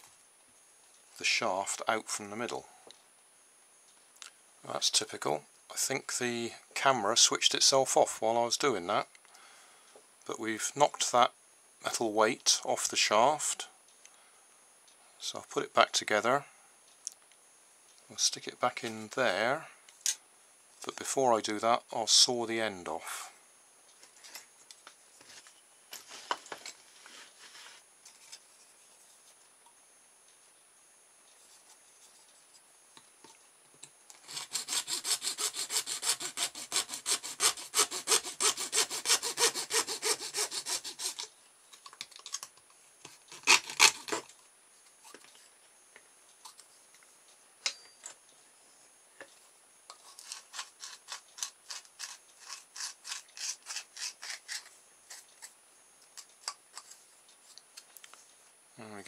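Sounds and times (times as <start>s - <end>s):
hacksaw cutting plastic: 34.2s - 41.3s, 43.1s - 44.3s, 49.9s - 55.6s.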